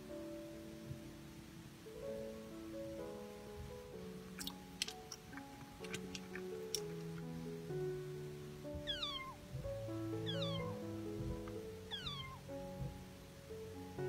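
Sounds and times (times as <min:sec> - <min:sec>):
light background music: 0:00.0 - 0:14.0
cat meowing: 0:08.8 - 0:09.4, 0:10.2 - 0:10.8, 0:11.9 - 0:12.4.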